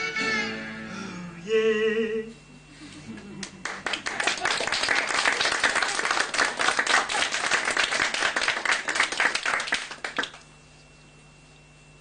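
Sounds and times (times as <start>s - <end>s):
faint steady hum: 0.0s - 12.0s
audience applauding: 3.4s - 10.4s.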